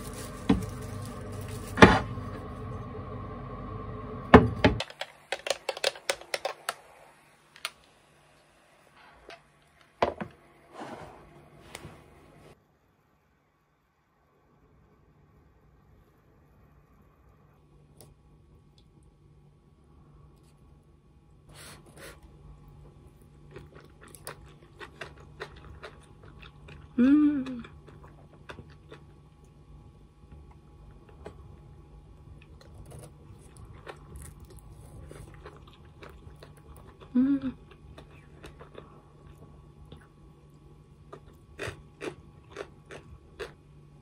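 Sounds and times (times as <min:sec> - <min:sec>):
wet chewing: 0:22.8 - 0:29.5, 0:32.3 - 0:43.6
person humming mmm: 0:26.9 - 0:27.8, 0:37.0 - 0:37.8.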